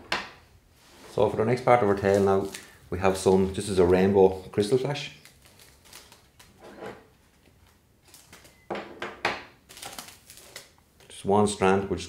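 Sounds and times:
plastic packet rustling: 1.6s - 6.6s, 7.2s - 8.6s, 9.6s - 11.1s.

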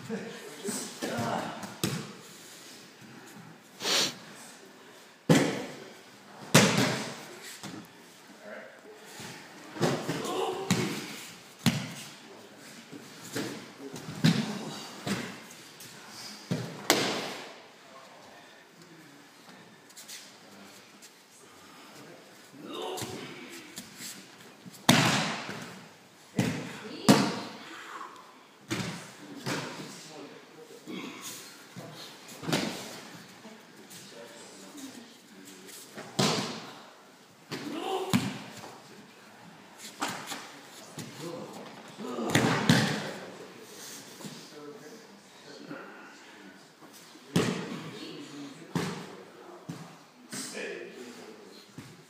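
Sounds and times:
breathy hiss: 3.3s - 4.5s
body slapping a mat: 24.8s - 25.8s.

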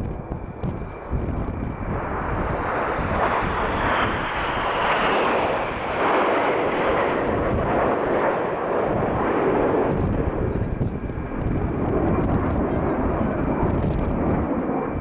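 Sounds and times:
jet roar flying past: 0.0s - 15.0s.

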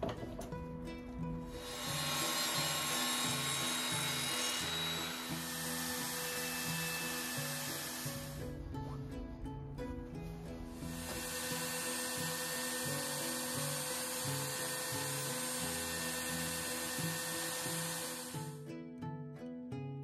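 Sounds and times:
background music with plucked notes: 0.0s - 20.0s
power tool whirring: 1.5s - 8.6s, 10.7s - 18.6s.

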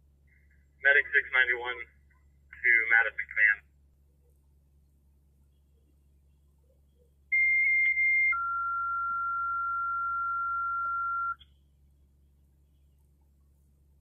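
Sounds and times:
two-tone radio paging tones: 7.3s - 11.4s.

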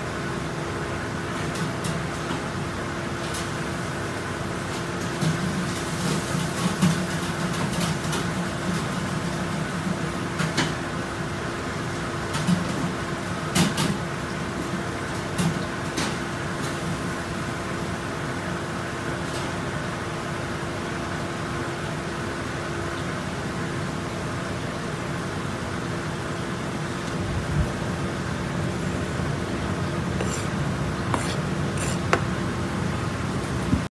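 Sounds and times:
steady machine hum: 19.6s - 33.9s.

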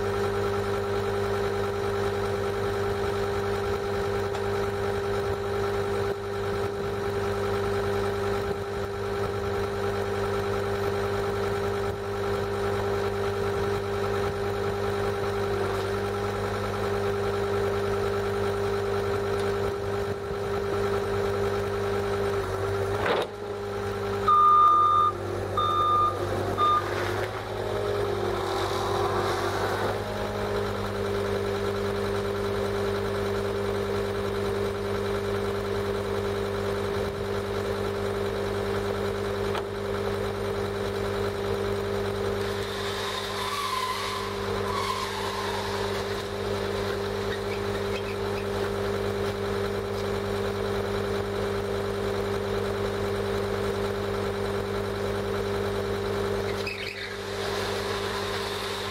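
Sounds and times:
diesel engine idling: 0.0s - 58.9s
backup alarm beep: 24.3s - 26.9s.

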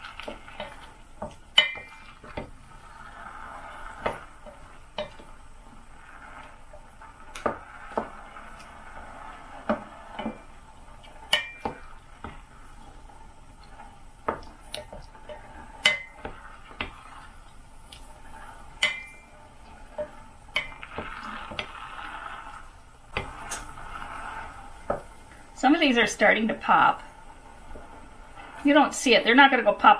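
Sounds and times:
faint steady hiss: 0.0s - 29.9s
wooden spatula knocking metal pan: 0.3s - 2.6s, 11.3s - 12.5s, 18.8s - 19.2s.

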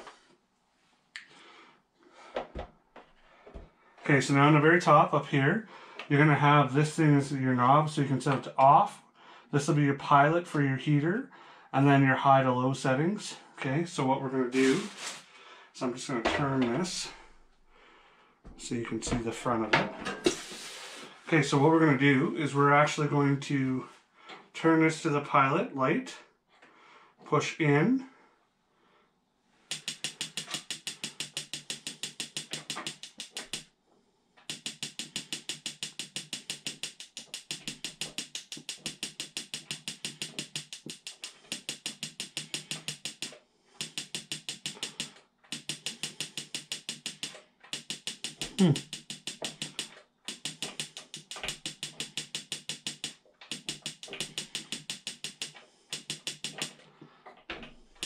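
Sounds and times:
spark igniter ticking rapidly: 29.7s - 33.7s, 34.4s - 56.7s.

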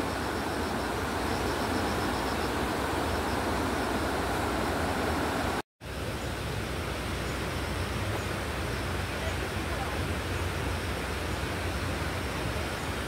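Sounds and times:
running water: 0.0s - 13.0s.

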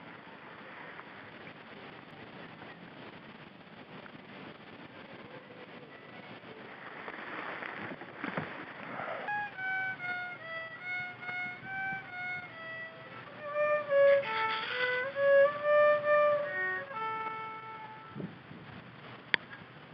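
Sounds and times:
solo fiddle tune: 8.8s - 18.5s.

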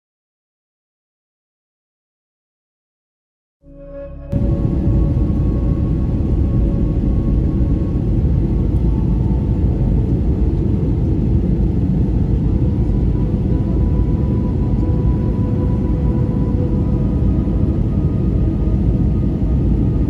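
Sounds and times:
faint steady whine: 3.7s - 20.0s
airliner engine rumble in cabin: 4.3s - 20.0s.

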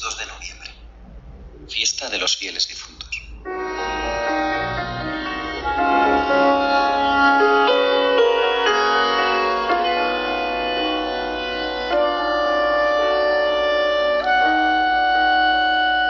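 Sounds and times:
slow instrumental chords: 3.4s - 16.0s.

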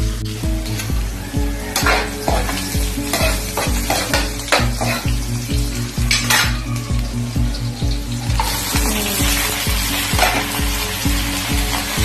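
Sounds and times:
aromatics sizzling in oil: 0.0s - 12.0s
background music with steady beat: 0.0s - 12.0s
metal spatula scraping wok: 0.6s - 6.6s, 10.0s - 10.7s.

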